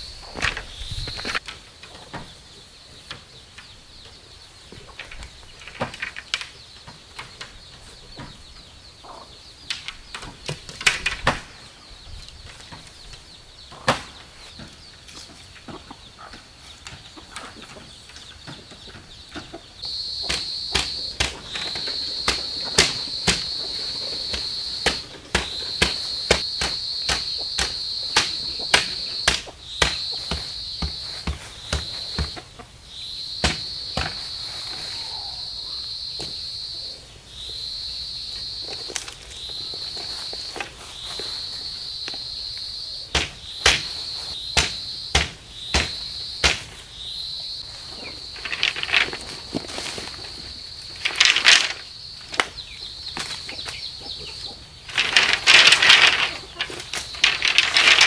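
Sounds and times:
high insect drone: 0:19.8 - 0:58.0
bamboo poles knocking: 0:20.2 - 0:32.6, 0:33.4 - 0:34.2, 0:43.1 - 0:44.0, 0:44.6 - 0:46.7, 0:48.4 - 0:52.6, 0:54.9 - 0:58.0.

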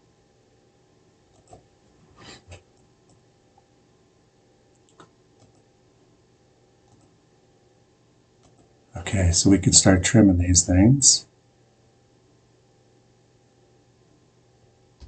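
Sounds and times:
faint steady hum: 0:00.0 - 0:15.0
computer mouse clicks: 0:01.3 - 0:01.7, 0:04.8 - 0:05.7, 0:06.9 - 0:07.2, 0:08.4 - 0:08.7.

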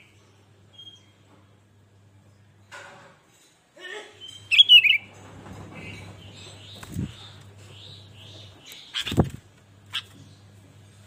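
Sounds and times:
bird wings fluttering: 0:09.0 - 0:09.5.

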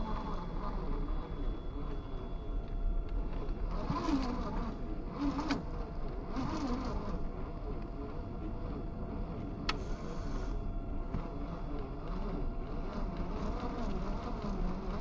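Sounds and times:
electric motor whining: 0:03.3 - 0:10.5, 0:11.1 - 0:15.0.

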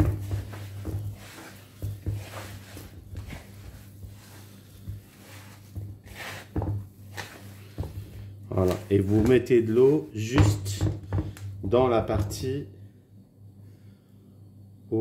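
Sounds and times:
hands kneading crumbly dough: 0:00.0 - 0:12.6
steady low hum: 0:00.0 - 0:15.0.

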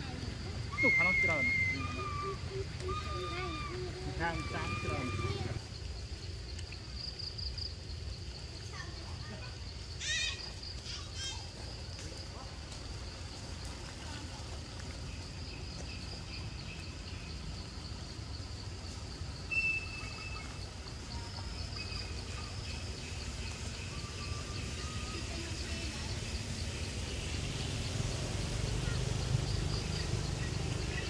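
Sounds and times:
insects droning: 0:00.0 - 0:31.0
bird chirps: 0:19.5 - 0:27.0.

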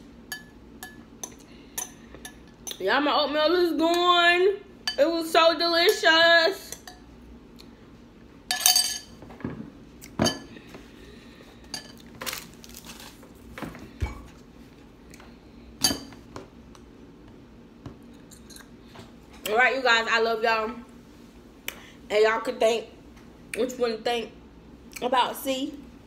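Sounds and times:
metal spoon clinking glass bowl: 0:08.5 - 0:09.1.

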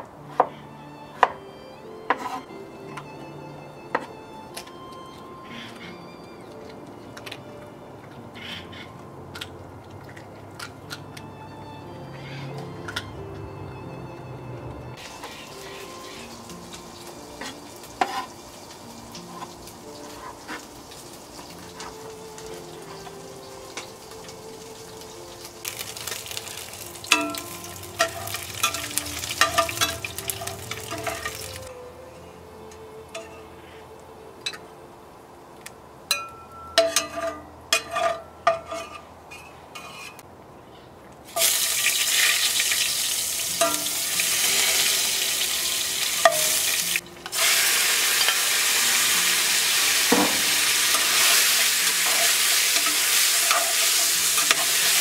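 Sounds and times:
chicken sizzling in hot oil: 0:15.0 - 0:31.7, 0:41.3 - 0:55.0.

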